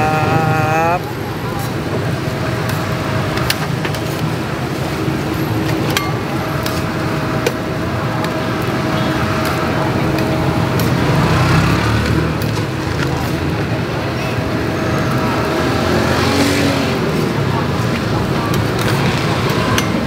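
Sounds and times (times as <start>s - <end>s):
street traffic noise: 0.0s - 20.0s
vehicle rumble: 0.0s - 20.0s.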